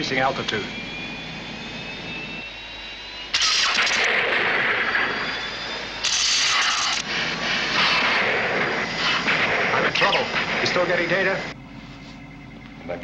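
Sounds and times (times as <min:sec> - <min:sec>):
spacecraft steady hum: 0:00.0 - 0:13.0.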